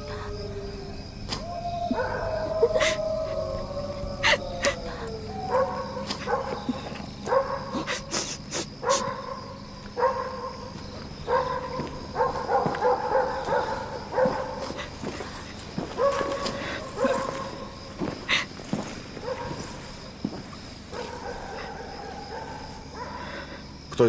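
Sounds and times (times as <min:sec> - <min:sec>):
dog barking: 0:01.9 - 0:03.0, 0:04.2 - 0:08.1, 0:08.8 - 0:15.0, 0:15.8 - 0:17.8, 0:19.2 - 0:19.8, 0:20.9 - 0:23.4.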